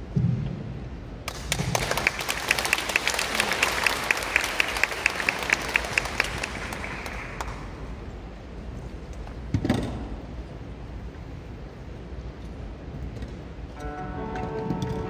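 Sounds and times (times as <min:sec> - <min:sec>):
audience applauding: 0:01.3 - 0:08.2.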